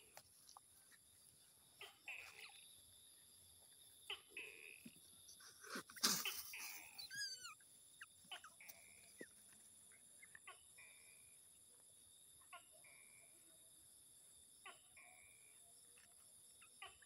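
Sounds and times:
high falling chirps: 0:07.0 - 0:07.6.

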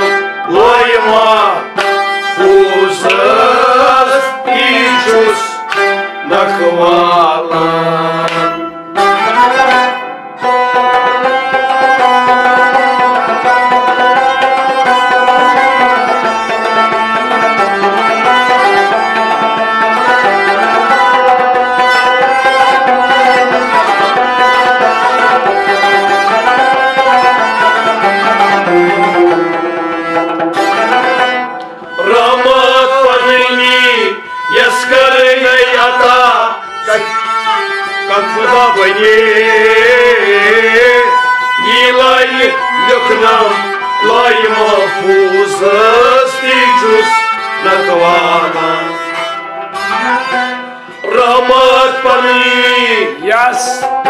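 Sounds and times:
man singing: 0:00.0 - 0:09.8, 0:31.9 - 0:49.4, 0:50.9 - 0:54.0
bowed string melody: 0:00.0 - 0:54.0
plucked lute: 0:00.0 - 0:54.0.

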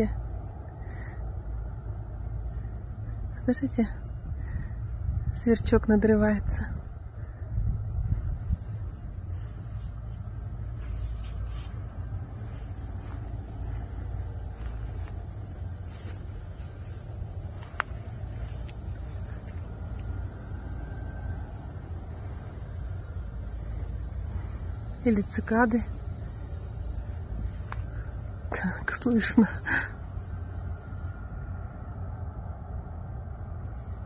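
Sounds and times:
insect high-pitched trill: 0:00.0 - 0:34.0
low rumble: 0:00.2 - 0:25.1.

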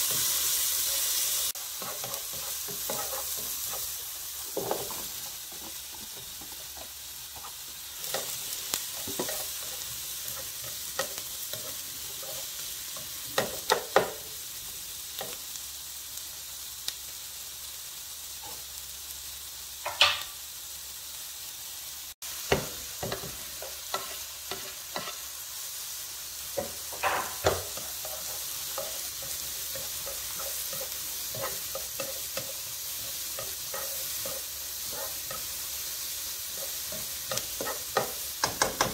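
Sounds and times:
vegetables sizzling in skillet: 0:00.0 - 0:38.9
spatula scraping and tapping pan: 0:01.6 - 0:14.2, 0:22.4 - 0:25.3, 0:26.5 - 0:38.9.

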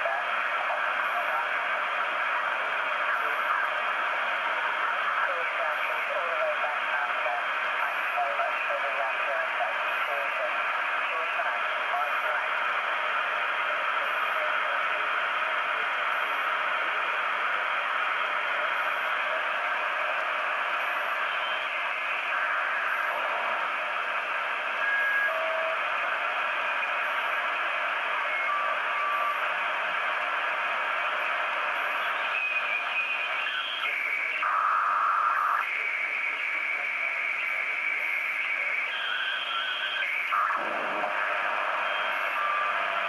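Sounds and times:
radio static hiss: 0:00.0 - 0:43.0
radio whistle tones: 0:15.8 - 0:43.0.

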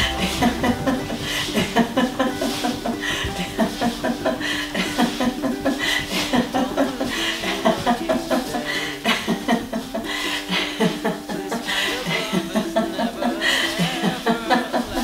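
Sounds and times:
steady low tone: 0:00.0 - 0:05.6.

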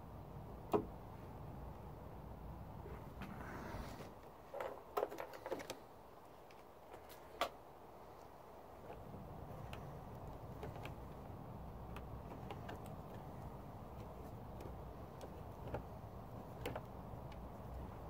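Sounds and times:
light clicks and taps: 0:08.8 - 0:18.0.

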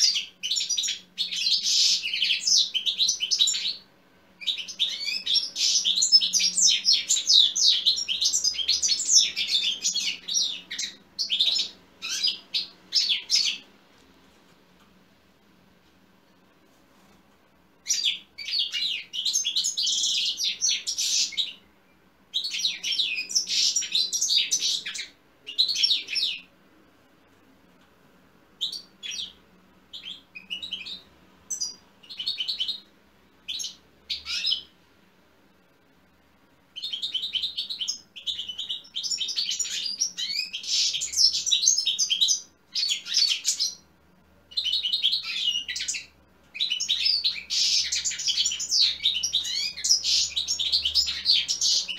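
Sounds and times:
goldfinch twittering song: 0:44.5 - 0:51.9.

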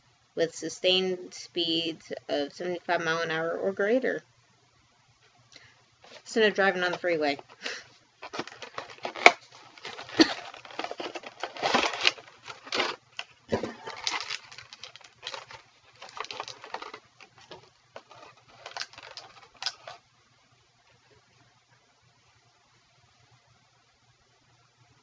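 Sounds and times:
plastic packaging crinkling: 0:06.0 - 0:20.0.

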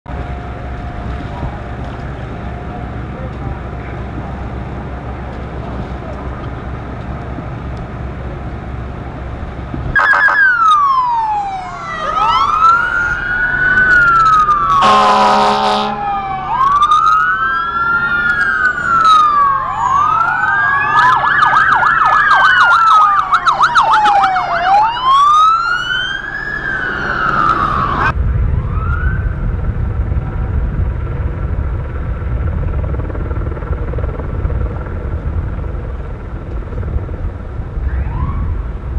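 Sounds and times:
sirens wailing and yelping: 0:00.1 - 0:29.6, 0:37.7 - 0:38.9
horn blast: 0:14.7 - 0:16.1
low steady rumble: 0:27.8 - 0:38.9.

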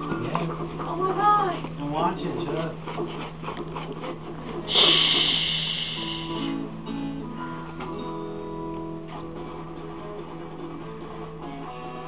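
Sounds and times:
loud hissing crash: 0:04.7 - 0:06.4
guitar music with held notes: 0:05.0 - 0:12.0.

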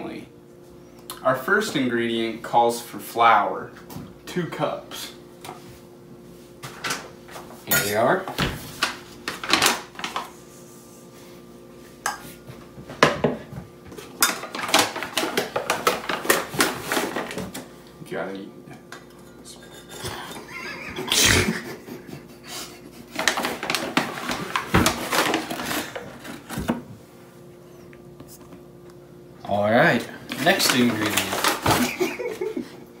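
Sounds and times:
people laughing: 0:20.1 - 0:23.1, 0:31.8 - 0:32.9
paper rustling: 0:23.2 - 0:26.7, 0:30.3 - 0:32.2.

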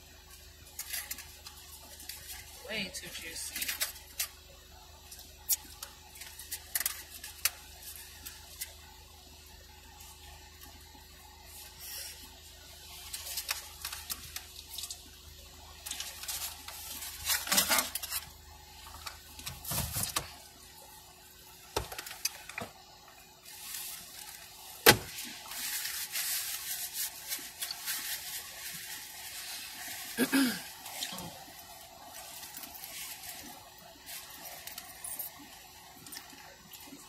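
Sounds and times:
foil wrapper rustling: 0:00.7 - 0:04.4, 0:05.1 - 0:08.8, 0:11.6 - 0:15.2, 0:15.8 - 0:20.4, 0:23.4 - 0:35.6.

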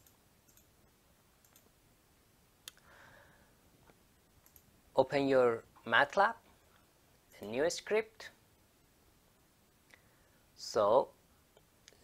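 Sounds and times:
faint computer mouse clicks: 0:01.4 - 0:01.7, 0:04.4 - 0:04.7.

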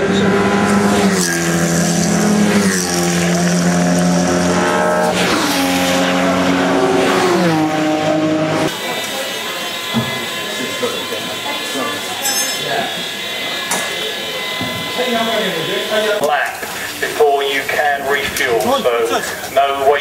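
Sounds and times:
race cars passing at speed: 0:00.0 - 0:08.8.

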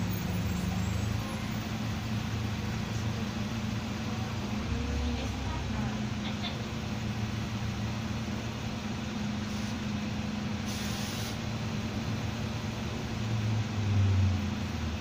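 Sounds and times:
bus diesel engine droning: 0:00.0 - 0:15.0
road noise: 0:00.0 - 0:15.0
air hiss: 0:10.6 - 0:11.4.

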